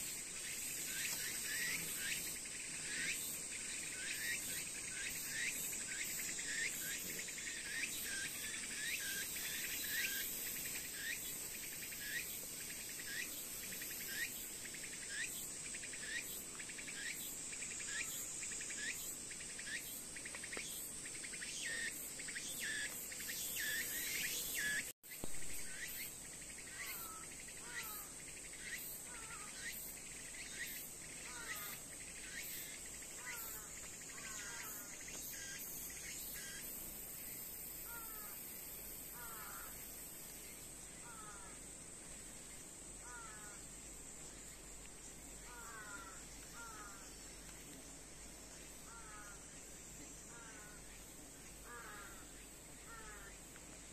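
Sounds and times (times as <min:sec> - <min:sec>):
falling bird calls: 0:00.0 - 0:36.6, 0:37.8 - 0:41.7, 0:42.4 - 0:53.9
insects buzzing high-pitched: 0:00.0 - 0:53.9
short insect chirps: 0:00.0 - 0:53.9.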